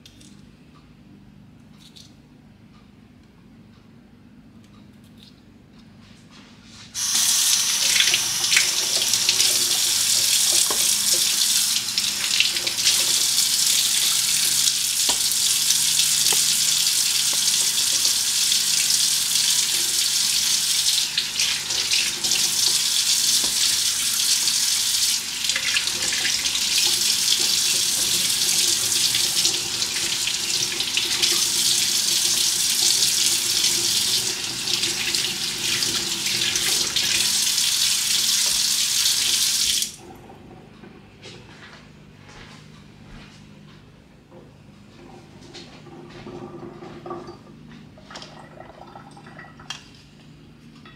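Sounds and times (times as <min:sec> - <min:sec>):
tap running into metal sink: 0:07.0 - 0:11.4, 0:16.2 - 0:16.6.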